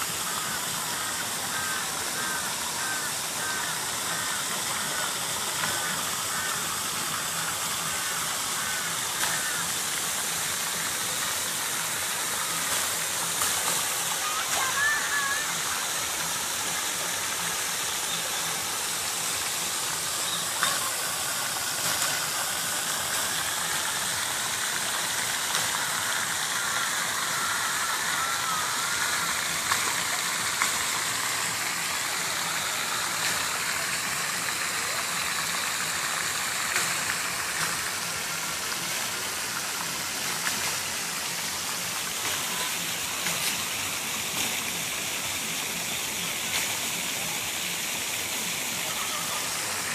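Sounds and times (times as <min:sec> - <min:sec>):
steady rushing hiss: 0:00.0 - 0:49.9.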